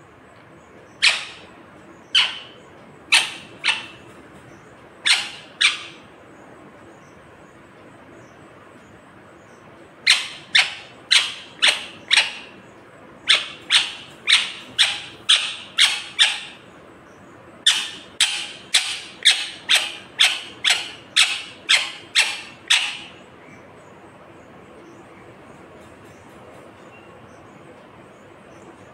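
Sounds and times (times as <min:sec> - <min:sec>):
parakeet shrill calls: 0:00.9 - 0:04.1, 0:05.0 - 0:06.0, 0:10.0 - 0:12.6, 0:13.2 - 0:16.6, 0:17.6 - 0:23.2.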